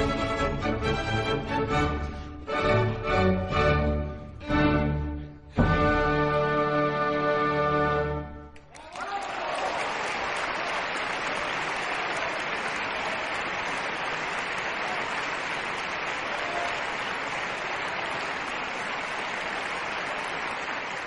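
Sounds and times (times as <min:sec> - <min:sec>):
audience applauding: 0:08.6 - 0:21.0.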